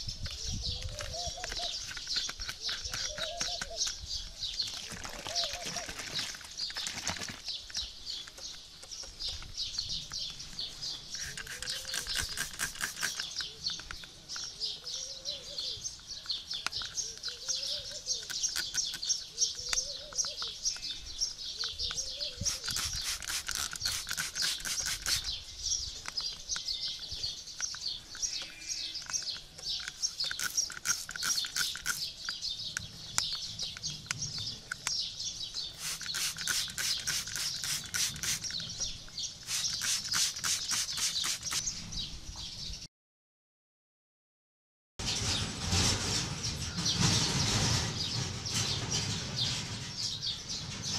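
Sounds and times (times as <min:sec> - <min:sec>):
small birds chirping: 0:00.0 - 0:42.9, 0:46.4 - 0:50.9
lower rising and falling bird call: 0:00.6 - 0:01.8, 0:11.0 - 0:13.6
rapid clicking bursts: 0:11.2 - 0:14.0, 0:22.5 - 0:25.4, 0:29.2 - 0:32.3, 0:35.8 - 0:38.7, 0:39.4 - 0:41.6.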